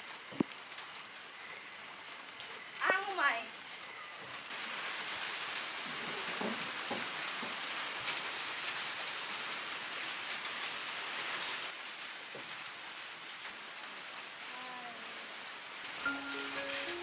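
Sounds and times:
steady rain falling: 0.0 - 17.0
thin high tone: 16.0 - 17.0.

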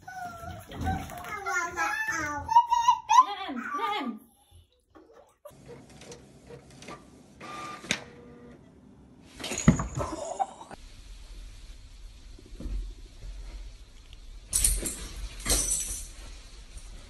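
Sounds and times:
loud clatter and scuffle: 0.2 - 2.4
printer feeding paper: 5.5 - 8.6.

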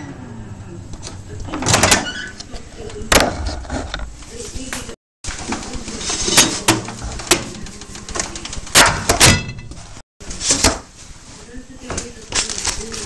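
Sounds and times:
baking tray and oven door clattering: 5.3 - 9.9.

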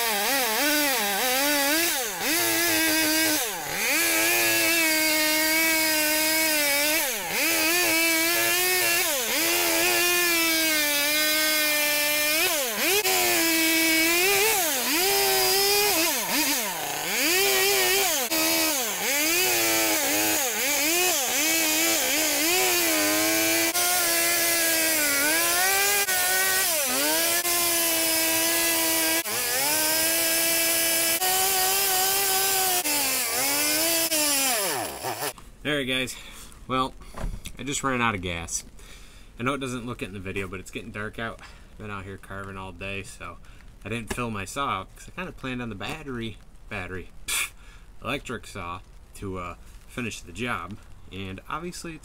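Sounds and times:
chainsaw carving wood: 0.0 - 35.4.

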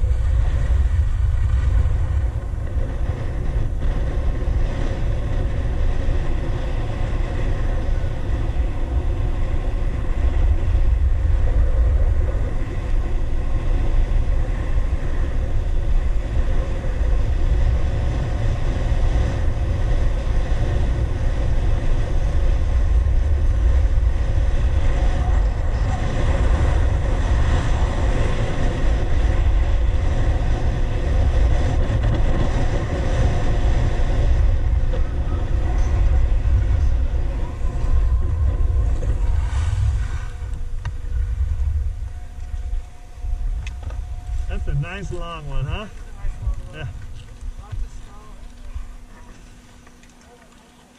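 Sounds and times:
wind buffeting microphone: 0.0 - 50.2
skis gliding on snow: 0.0 - 50.9.

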